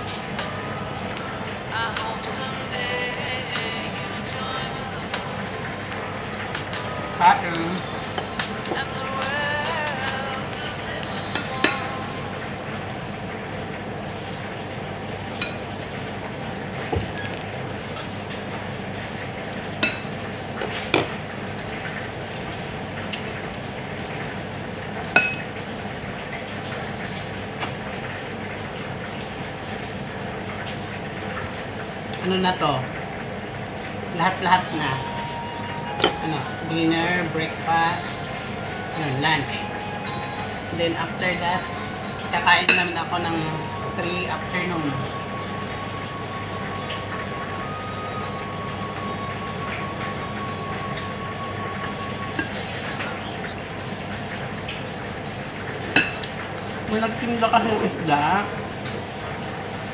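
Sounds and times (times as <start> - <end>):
steady background hum: 0.0 - 59.9
ceramic dish clinking: 25.2 - 25.5, 55.9 - 56.3
machine whining: 34.2 - 55.4.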